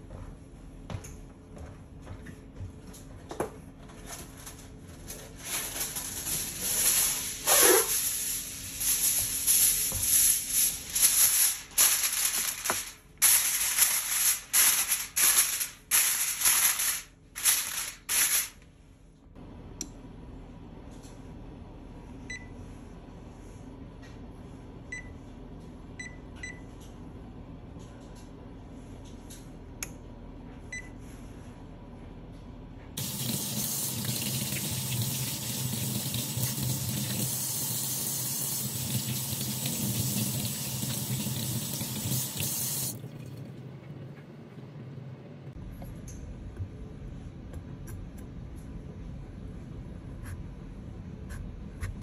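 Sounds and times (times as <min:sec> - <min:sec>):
aluminium foil crinkling: 0:04.0 - 0:18.6
oven keypad beeps: 0:22.3 - 0:22.6, 0:24.9 - 0:25.2, 0:26.0 - 0:26.7, 0:30.7 - 0:31.0.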